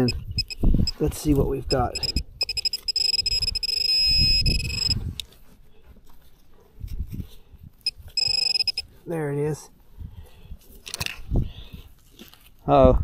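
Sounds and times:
high-pitched alert tone: 1.7 - 5.0
scraping and crunching soil: 12.0 - 12.7.

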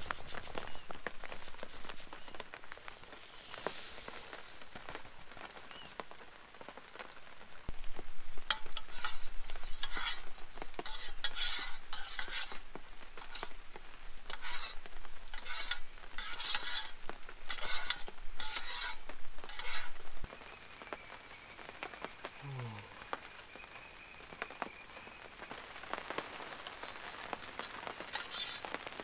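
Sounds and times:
spoon scraping metal pot: 8.5 - 12.6, 13.2 - 13.6, 14.3 - 20.0, 28.0 - 28.8.

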